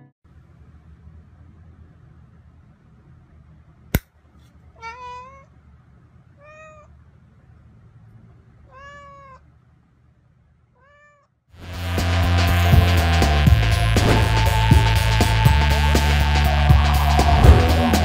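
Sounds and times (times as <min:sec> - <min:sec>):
cat meowing: 0:04.8 - 0:05.5, 0:06.4 - 0:06.9, 0:08.6 - 0:09.5, 0:10.8 - 0:11.4
loud music with deep hum: 0:11.6 - 0:18.0.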